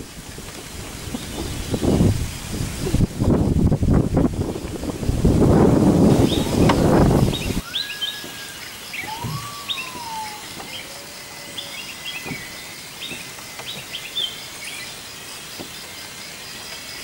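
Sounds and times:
birds chirping: 0.9s - 2.2s, 6.0s - 17.0s
whistled bird note: 6.2s - 14.8s.

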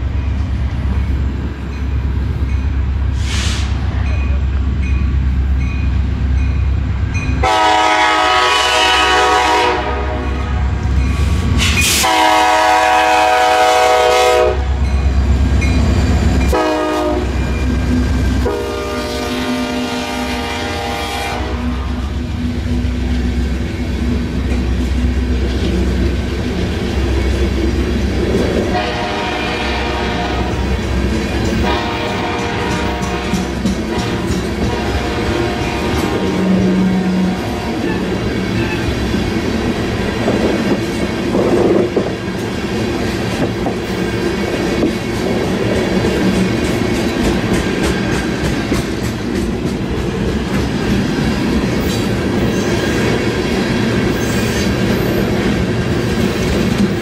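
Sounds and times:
locomotive air horn: 7.4s - 10.8s, 11.6s - 14.8s, 16.5s - 17.4s, 18.4s - 22.1s, 28.6s - 30.7s, 31.6s - 38.9s
train wheels clacking on rail: 10.7s - 57.0s.

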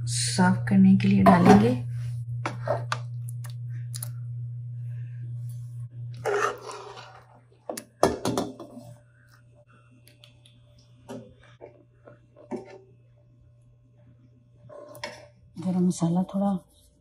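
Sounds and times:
metal spoon scraping cookware: 6.2s - 7.3s.

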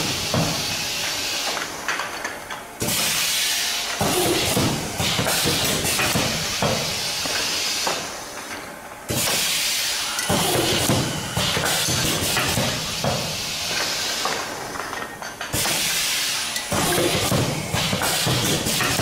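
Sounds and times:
compressed air hissing: 15.6s - 18.9s.

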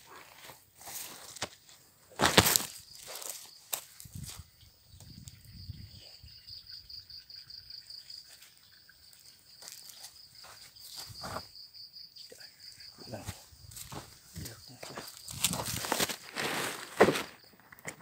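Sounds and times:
plastic sack rustling: 2.2s - 3.5s, 15.1s - 17.4s
insect trilling: 2.2s - 16.0s.

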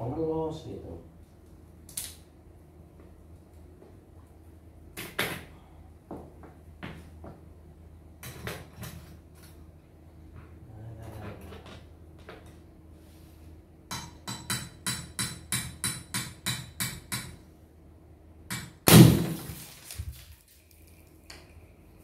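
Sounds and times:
sharp knocks on popcorn machine: 18.6s - 19.6s
loud popcorn machine burst: 18.8s - 19.7s.

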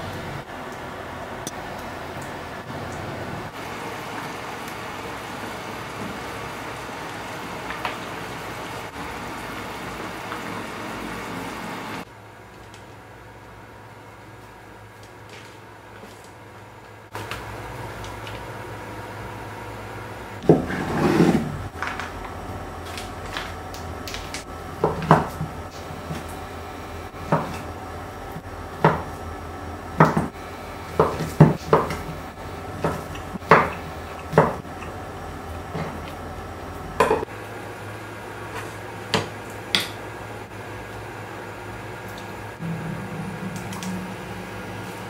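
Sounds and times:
steady low hum: 0.0s - 45.0s.

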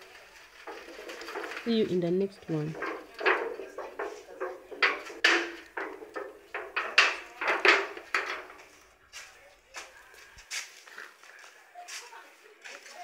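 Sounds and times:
scraping on iron sheet: 0.0s - 8.8s.

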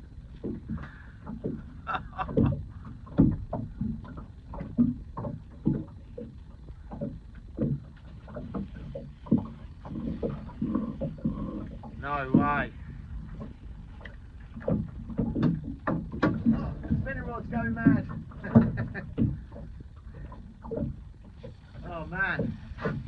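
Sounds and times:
water lapping against boat hull: 0.0s - 23.0s.

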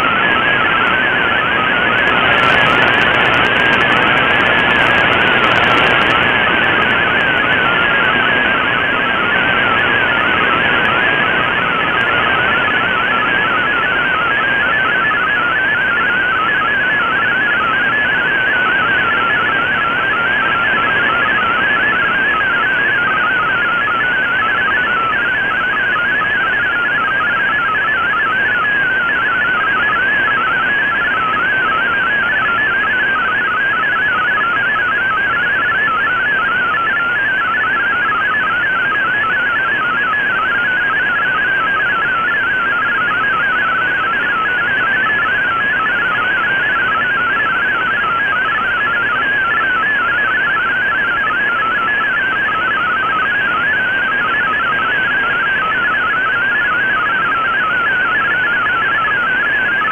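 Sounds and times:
receiver hiss: 0.0s - 13.6s
warbling digital radio tones: 0.0s - 34.7s.

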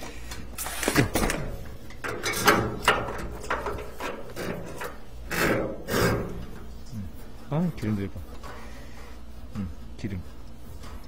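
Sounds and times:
equipment scraping and knocking: 1.9s - 8.9s.

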